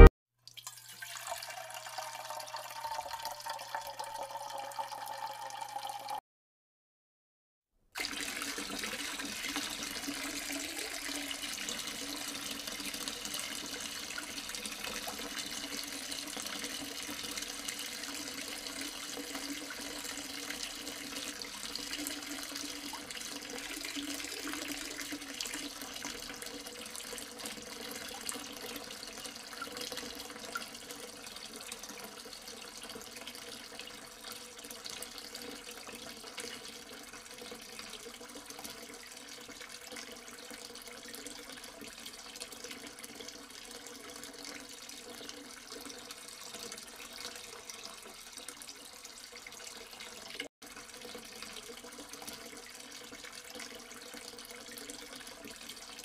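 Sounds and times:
fountain water trickling: 0.5s - 6.2s, 8.0s - 56.0s.

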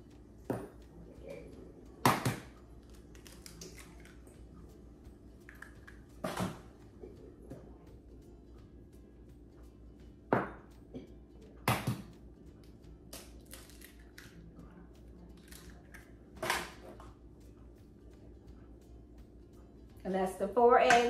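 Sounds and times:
eggs cracking on a metal bowl: 1.9s - 4.5s, 5.3s - 7.2s, 10.2s - 17.2s.

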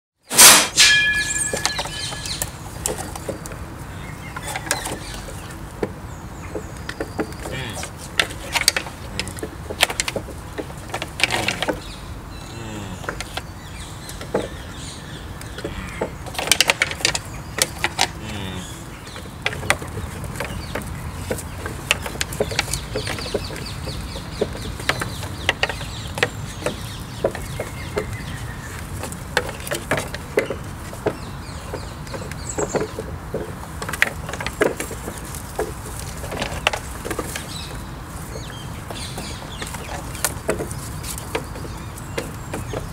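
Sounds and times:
antlers knocking on branches: 4.4s - 11.9s.

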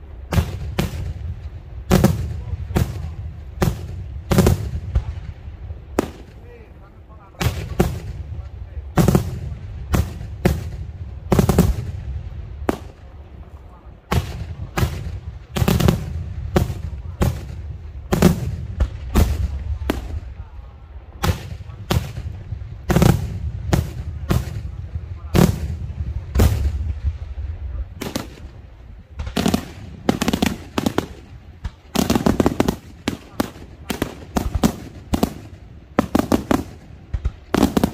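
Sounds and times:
low rumble: 0.0s - 36.0s
firework shells bursting: 28.0s - 37.9s.

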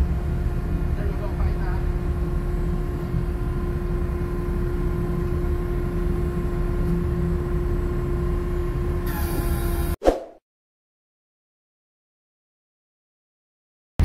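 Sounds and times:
steady machinery hum: 0.0s - 10.0s.

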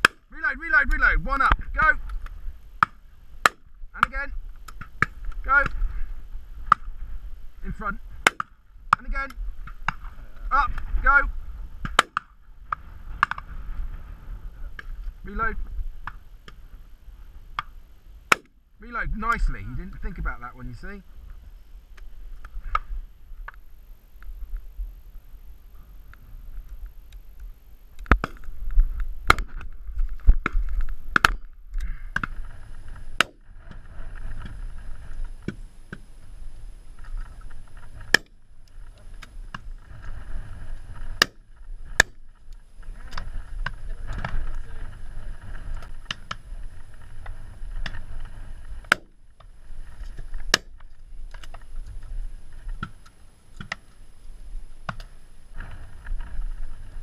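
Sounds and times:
wind buffeting microphone: 0.0s - 17.6s.

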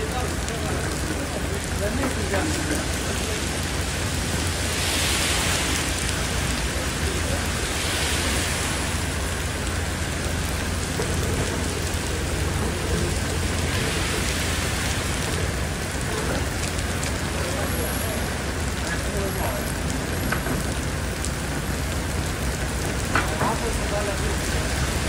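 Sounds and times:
car tyres hissing through water: 0.0s - 25.0s
heavy rain on wet street: 0.0s - 25.0s.

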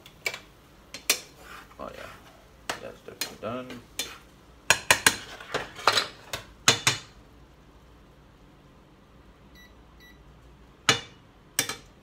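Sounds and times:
pots and pans clanking: 4.7s - 7.1s.

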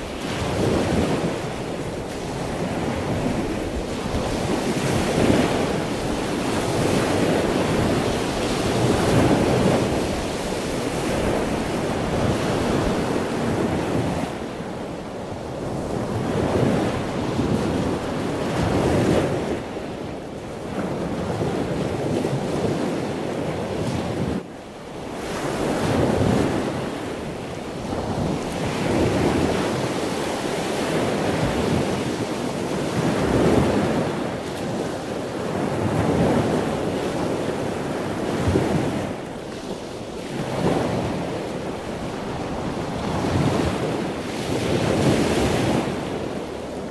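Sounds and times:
waves washing onto shore: 0.0s - 46.9s
wind buffeting microphone: 0.0s - 46.9s.

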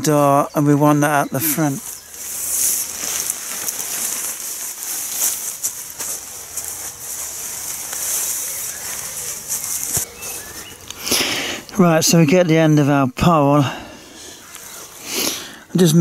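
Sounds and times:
tent fabric rustling and crackling: 0.0s - 11.6s.

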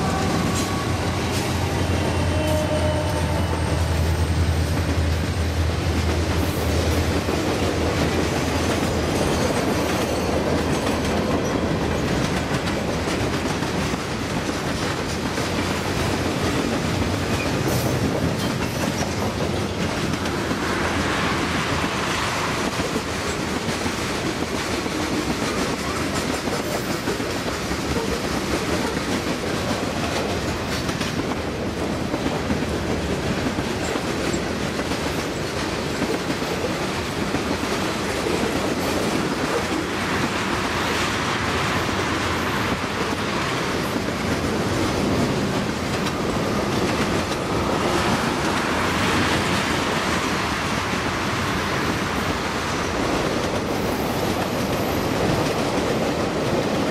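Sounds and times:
train wheels rumbling on rail: 0.0s - 56.9s
wheels clicking over rail joints: 4.6s - 20.6s.

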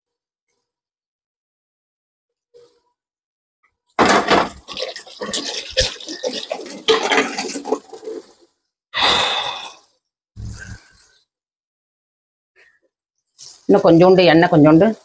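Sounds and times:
spatula scraping metal pan: 4.7s - 8.4s.

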